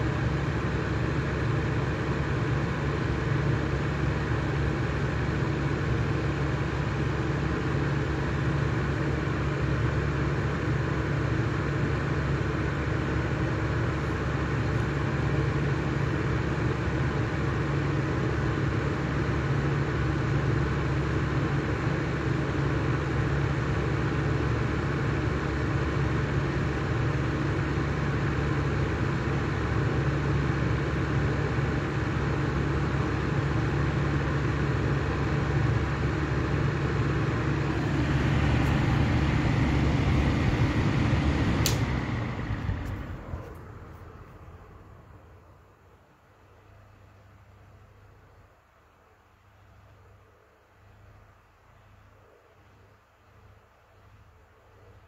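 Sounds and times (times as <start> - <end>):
exhaust fan air rush: 0.0 - 45.8
low motor hum: 23.6 - 45.4.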